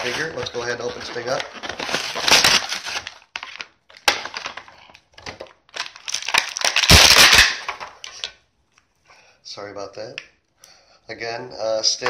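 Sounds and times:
plastic packaging crinkling: 0.0 - 8.4
sharp plastic crack: 1.7 - 8.4.

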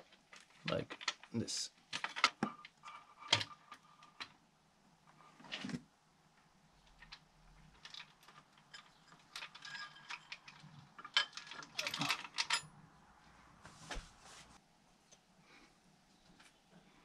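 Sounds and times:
timing chain rattling and clinking: 7.0 - 12.7.

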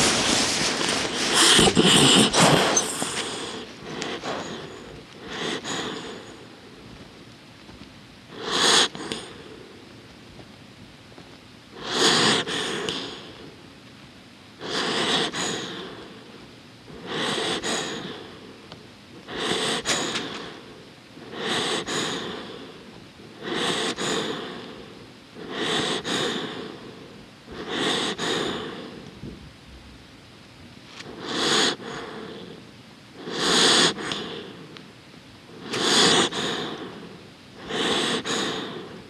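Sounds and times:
dog breathing through its nose: 0.0 - 6.5, 11.8 - 13.4, 14.6 - 16.1, 16.9 - 18.4, 19.2 - 22.8, 23.4 - 29.1, 31.0 - 32.6, 33.2 - 34.7, 35.5 - 39.0.

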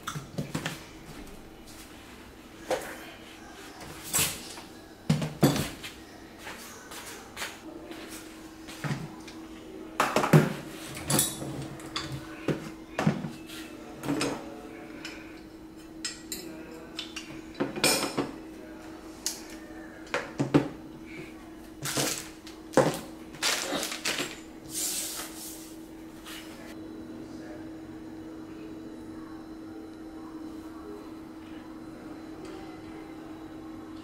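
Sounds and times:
faint steady hum: 0.0 - 34.0
plastic bags rustling: 21.8 - 24.4.

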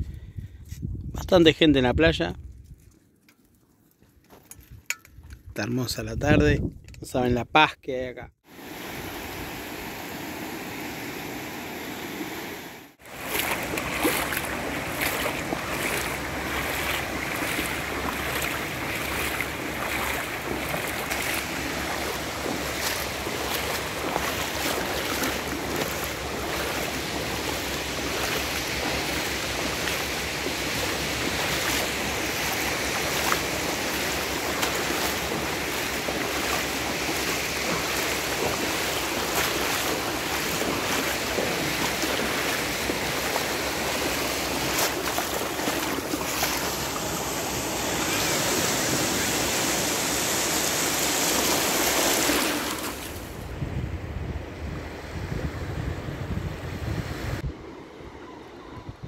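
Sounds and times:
sea waves washing on beach: 8.4 - 53.6.

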